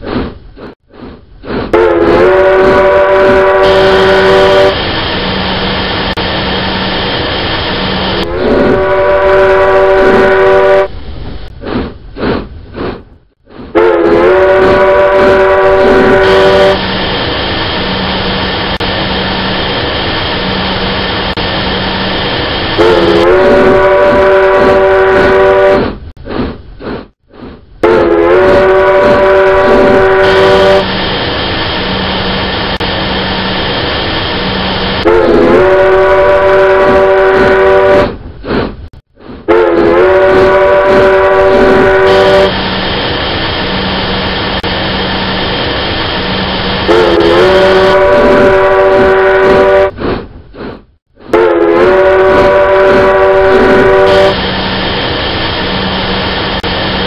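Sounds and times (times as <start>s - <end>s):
train rumble and low hum: 0.0s - 57.0s
train horn blasts: 1.7s - 4.8s, 8.1s - 11.0s, 13.7s - 16.9s, 22.8s - 26.0s, 27.8s - 30.9s, 35.0s - 38.2s, 39.5s - 42.6s, 46.8s - 50.0s, 51.3s - 54.4s.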